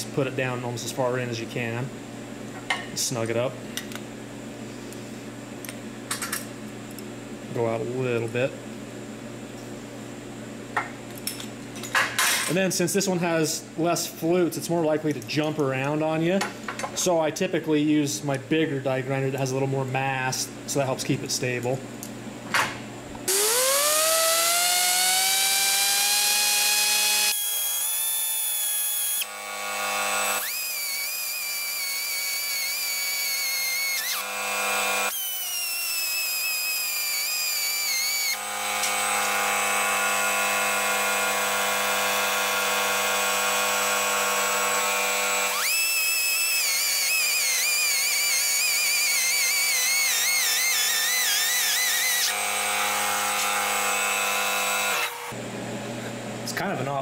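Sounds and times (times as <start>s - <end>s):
die grinder whining: 23.3s - 55.4s.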